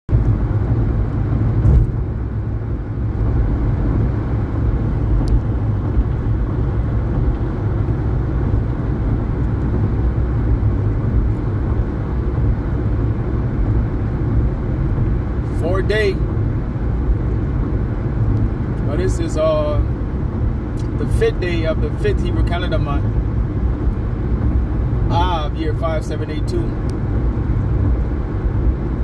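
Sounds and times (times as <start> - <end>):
car cabin road noise: 0.1 - 29.0.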